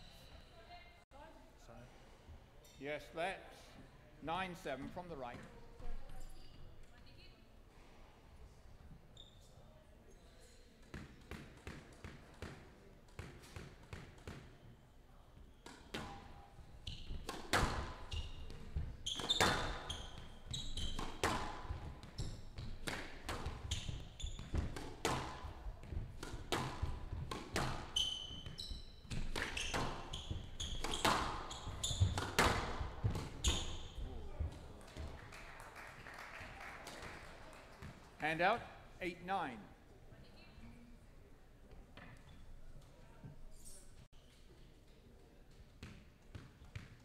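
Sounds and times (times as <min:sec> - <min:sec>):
squash ball hits: 0:17.0 - 0:34.2
shoes squeaking on wooden floor: 0:18.0 - 0:22.8, 0:23.5 - 0:24.8, 0:27.6 - 0:34.3.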